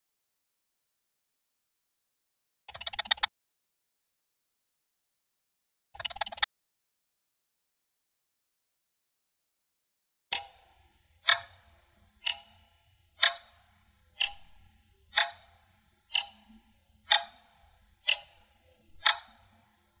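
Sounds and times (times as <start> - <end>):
clock ticking: 10.3 - 20.0.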